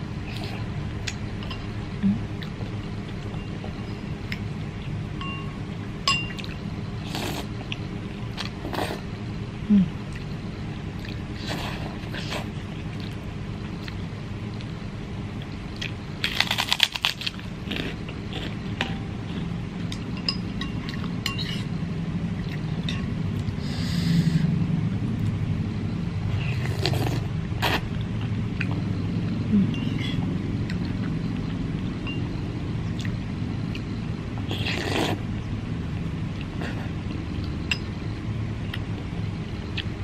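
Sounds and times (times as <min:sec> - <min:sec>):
low background hum: 0:00.0 - 0:40.0
spoon and chopsticks clinking on bowl: 0:05.2 - 0:06.4, 0:20.2 - 0:21.7
cracker crunching: 0:15.8 - 0:18.6.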